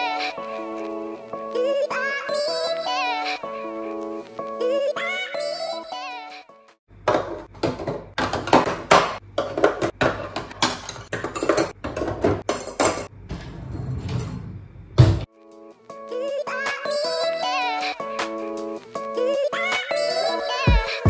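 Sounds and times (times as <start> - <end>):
dishes and pots clattering: 7.1 - 13.1.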